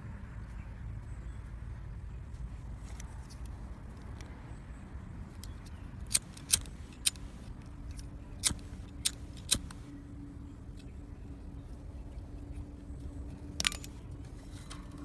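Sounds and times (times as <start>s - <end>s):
small parts clicking together: 5.4s - 9.8s, 13.5s - 15.0s.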